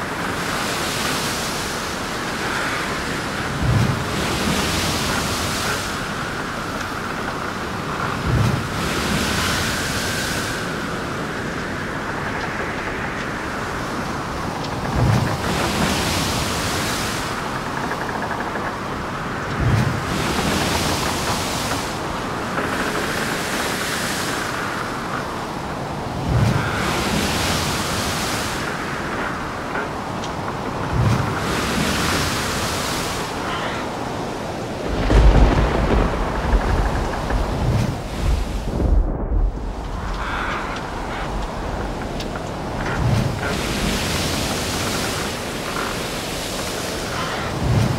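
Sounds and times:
wind and waves rushing: 0.0s - 47.9s
heavy low rumble: 34.8s - 43.5s.

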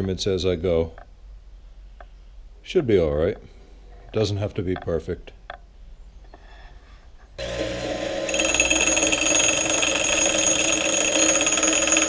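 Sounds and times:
bench grinder grinding metal: 7.4s - 12.0s
cordless drill running: 7.4s - 12.0s.

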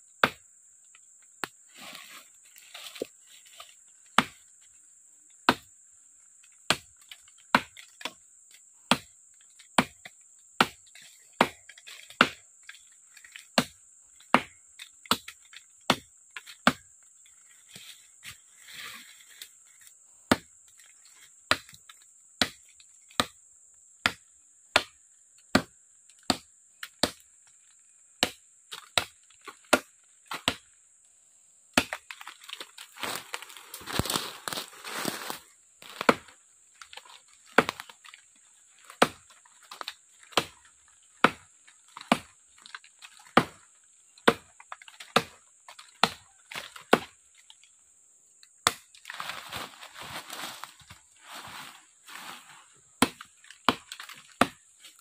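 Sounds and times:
machete chopping wood: 0.2s - 0.5s, 5.5s - 5.7s, 6.7s - 8.2s, 8.9s - 9.1s, 9.8s - 10.8s, 11.4s - 12.4s, 13.3s - 16.9s, 20.3s - 20.5s, 21.5s - 21.8s, 22.4s - 23.4s, 24.0s - 27.3s, 28.2s - 30.7s, 31.7s - 33.2s, 35.8s - 38.1s, 38.9s - 42.3s, 43.1s - 47.2s, 48.6s - 49.2s, 53.0s - 54.7s
rustling crackling noise: 32.4s - 36.0s.

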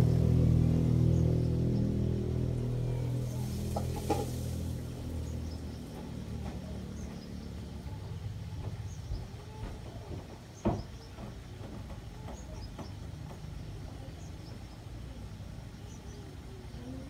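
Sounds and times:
steady low rumble: 0.0s - 9.3s.

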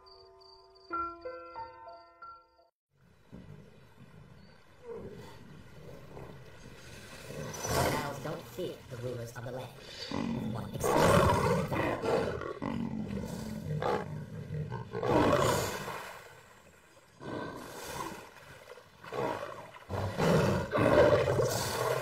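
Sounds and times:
lion growling and roaring: 3.3s - 8.4s, 9.8s - 16.4s, 17.2s - 22.0s.

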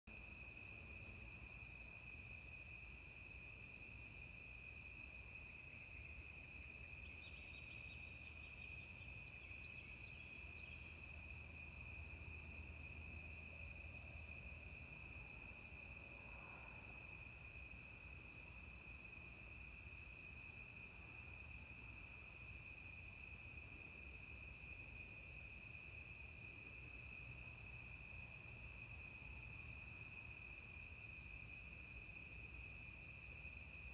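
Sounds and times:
crickets and insects trilling: 1.4s - 33.9s.

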